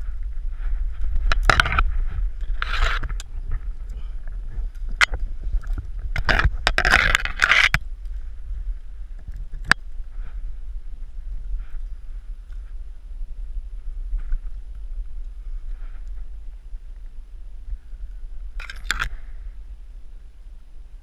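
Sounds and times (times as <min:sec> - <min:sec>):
low microphone rumble: 0:00.0 - 0:21.0
scraping against tree bark: 0:01.0 - 0:08.2.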